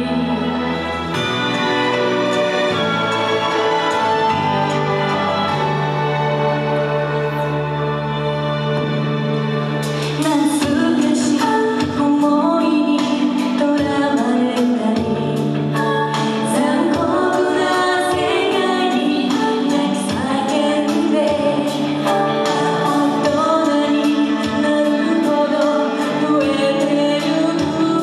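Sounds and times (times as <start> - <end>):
women singing into microphones: 0.0 - 1.0, 10.2 - 28.0
karaoke backing track with beat: 8.2 - 28.0.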